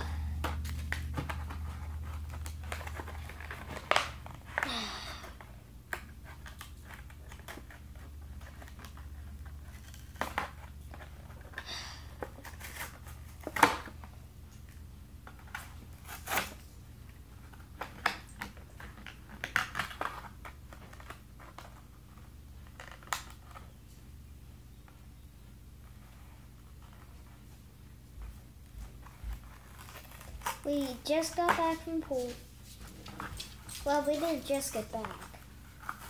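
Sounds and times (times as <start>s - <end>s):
faint low hum: 0.0s - 36.0s
plastic packaging crinkling: 29.0s - 36.0s.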